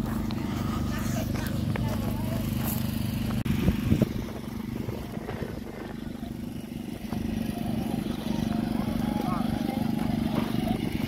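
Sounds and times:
engine running: 0:00.0 - 0:11.0.

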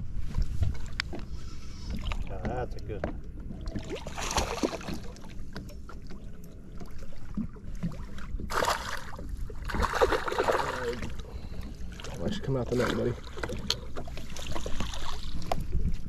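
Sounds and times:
fish splashing in water: 0:03.7 - 0:05.3, 0:08.1 - 0:11.2.

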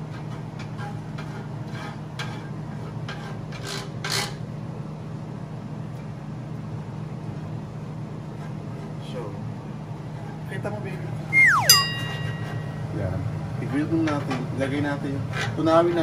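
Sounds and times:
spatula scraping grill pan: 0:00.6 - 0:03.9.

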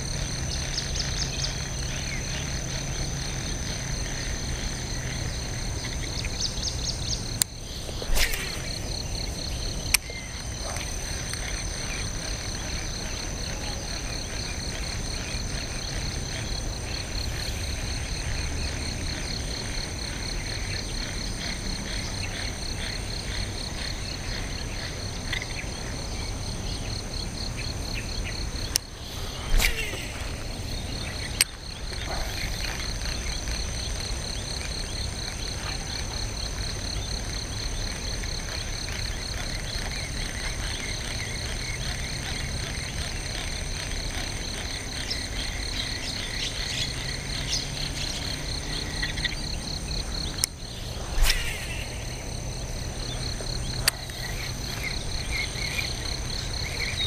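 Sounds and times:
insects and frogs calling: 0:00.0 - 0:57.0.

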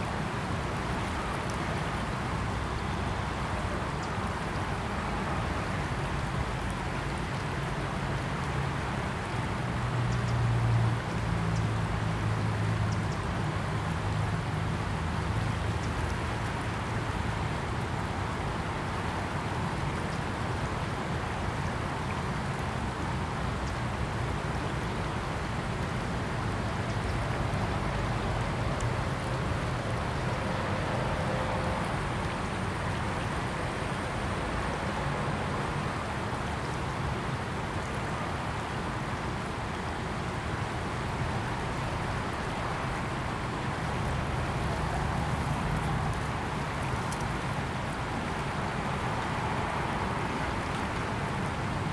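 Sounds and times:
river water rushing: 0:00.0 - 0:51.9.

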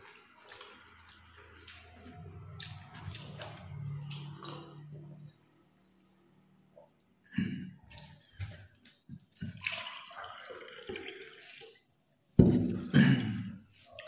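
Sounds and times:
food mixed by hand: 0:00.0 - 0:05.2
wet eating sounds: 0:00.0 - 0:05.3, 0:07.8 - 0:12.0.

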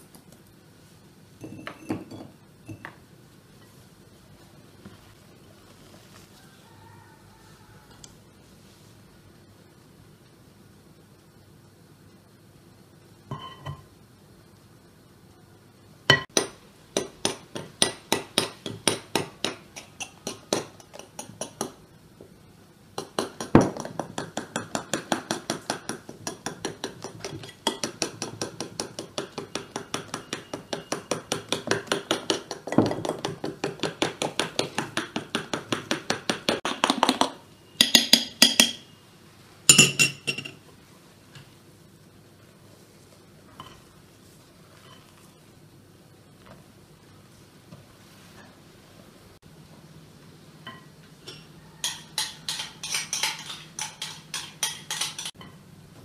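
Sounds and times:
bowl and utensil clattering: 0:50.7 - 0:55.6
utensil clinking against glass bowl: 0:50.7 - 0:55.6.

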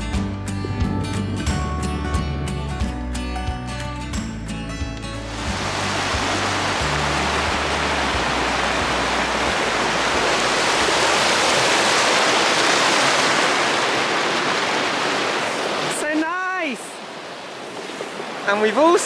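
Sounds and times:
stream rushing over rocks: 0:05.1 - 0:19.0.

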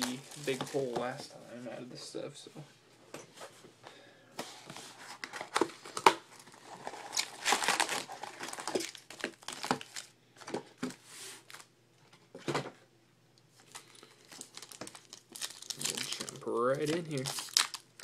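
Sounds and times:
foil crinkling: 0:05.1 - 0:10.1, 0:13.6 - 0:18.0.

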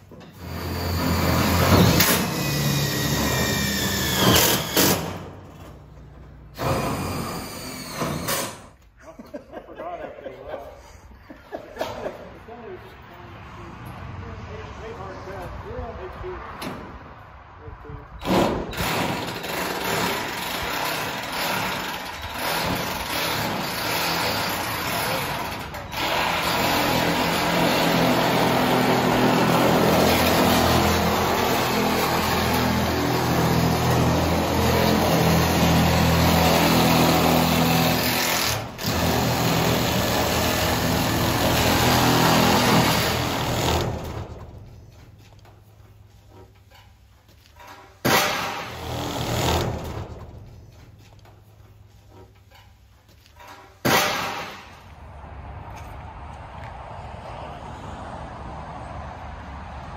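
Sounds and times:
electric metal shears cutting steel: 0:00.2 - 0:05.4, 0:06.6 - 0:08.7, 0:18.2 - 0:44.4, 0:48.0 - 0:50.4.

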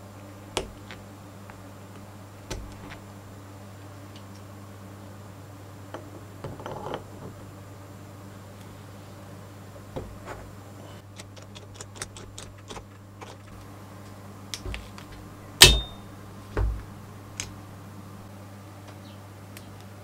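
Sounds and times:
metallic clack: 0:15.6 - 0:16.1.

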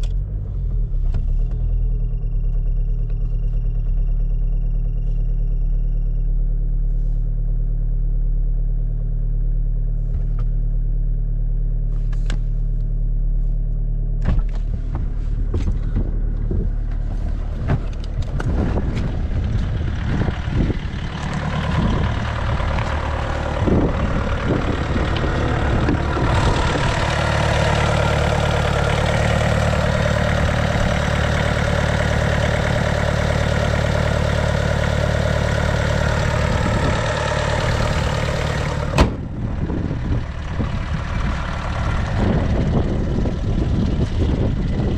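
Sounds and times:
diesel engine idling: 0:00.0 - 0:44.9
engine clicks and knocks: 0:13.7 - 0:44.9.

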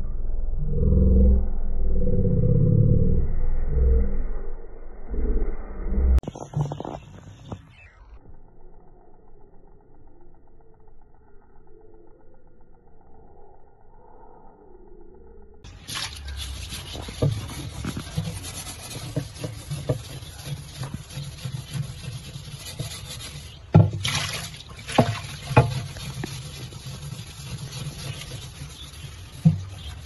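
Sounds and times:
steel wool scrubbing glass: 0:15.7 - 0:30.0.

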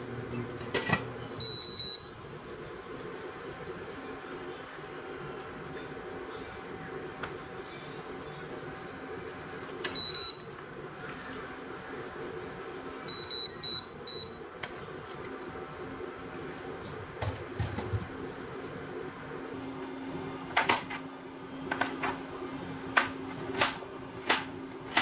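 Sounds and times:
steady hum: 0:00.0 - 0:25.0
cooktop control panel beeps: 0:00.3 - 0:02.2, 0:09.8 - 0:10.5, 0:13.0 - 0:14.5.

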